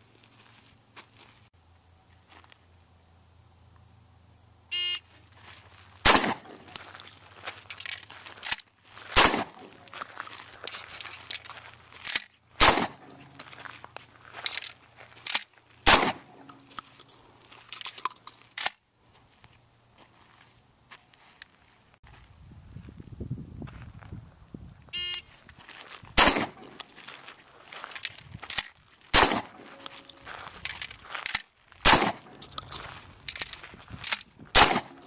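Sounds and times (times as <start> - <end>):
electronic beep: 4.7 - 5.0, 25.0 - 25.3
shotgun shots: 6.0 - 6.8, 9.1 - 9.9, 12.6 - 13.4, 15.8 - 16.6, 26.2 - 26.8, 29.1 - 29.9, 31.8 - 32.4, 34.5 - 35.0
sharp clatter and cracks: 6.0 - 18.8, 26.2 - 35.0.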